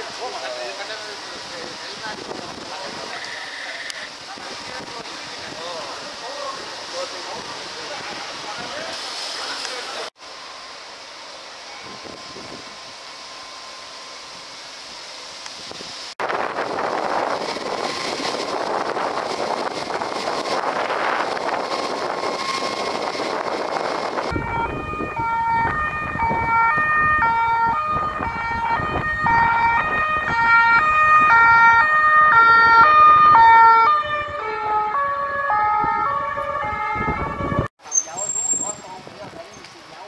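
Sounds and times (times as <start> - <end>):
steady roar of noise: 0.0 - 37.7
two-tone sirens: 16.4 - 37.7.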